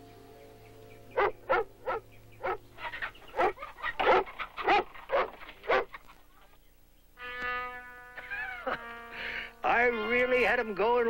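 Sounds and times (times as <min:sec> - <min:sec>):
dog barking: 0:01.2 - 0:02.6, 0:03.3 - 0:06.0.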